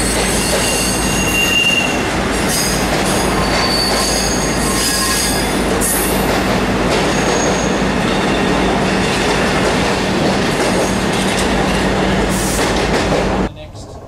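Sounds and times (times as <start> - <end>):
high wheel squeals: 0.0 - 6.2, 7.0 - 8.7
train wheels rumbling on rail: 0.0 - 14.0.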